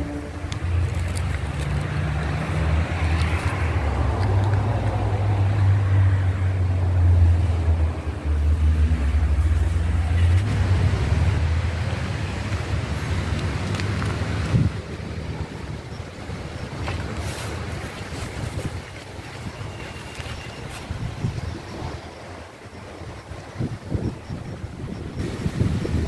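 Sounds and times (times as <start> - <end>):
wind buffeting microphone: 10.2 - 26.0.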